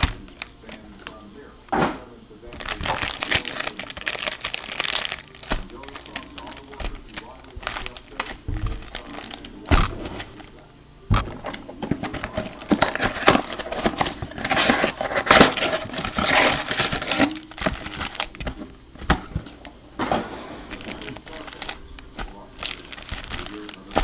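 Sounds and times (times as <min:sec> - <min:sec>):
foil wrappers crinkling: 0:00.0 - 0:01.5, 0:02.4 - 0:24.0
cardboard box moved: 0:11.2 - 0:24.0.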